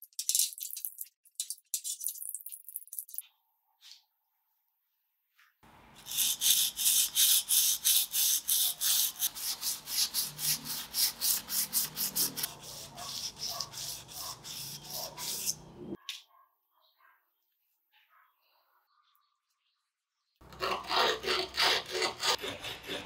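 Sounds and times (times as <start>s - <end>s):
abrasive pad scrubbing steel blade: 6.0s - 16.0s.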